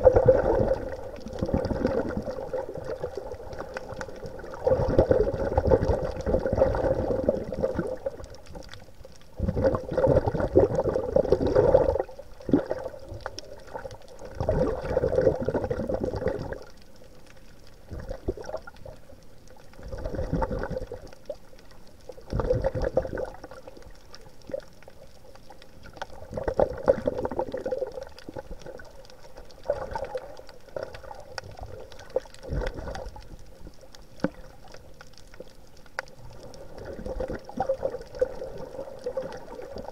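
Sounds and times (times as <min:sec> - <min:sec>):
underwater breath and bubbles: 0:00.0 - 0:39.9.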